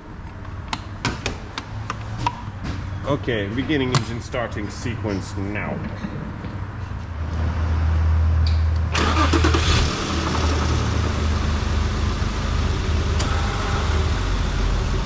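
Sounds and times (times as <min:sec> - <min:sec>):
car engine starting and idling: 0:08.7 - 0:15.0.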